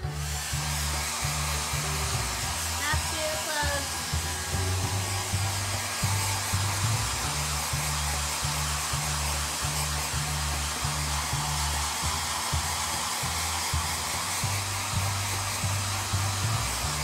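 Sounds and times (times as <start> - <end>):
background music with bass: 0.0 - 17.0
hair dryer blowing: 0.0 - 17.0.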